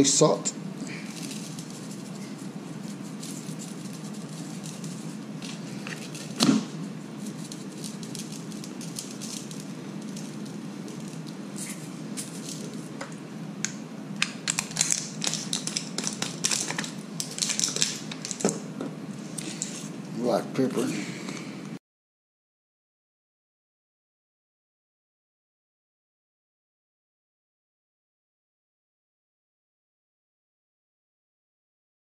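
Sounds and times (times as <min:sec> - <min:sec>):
steady low hum: 0:00.0 - 0:21.8
plastic shaker rattling: 0:01.0 - 0:06.4, 0:07.2 - 0:12.9, 0:14.4 - 0:18.5.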